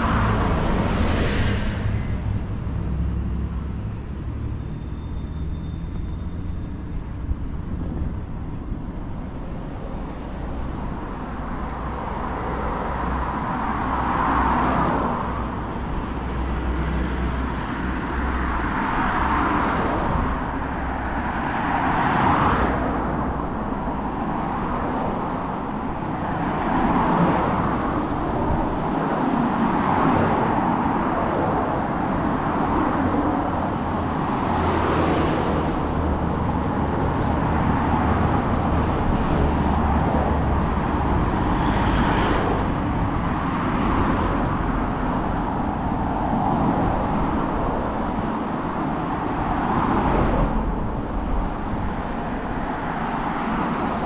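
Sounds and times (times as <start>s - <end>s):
low traffic rumble: 0.0s - 54.0s
vehicles passing: 0.0s - 54.0s.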